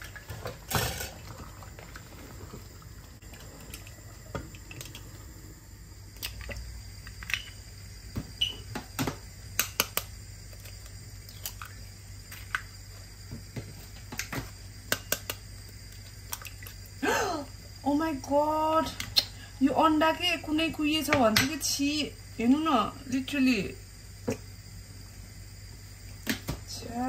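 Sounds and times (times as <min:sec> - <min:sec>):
steady low hum: 0:00.0 - 0:27.0
food popping in a pan: 0:08.7 - 0:11.8, 0:14.0 - 0:16.8.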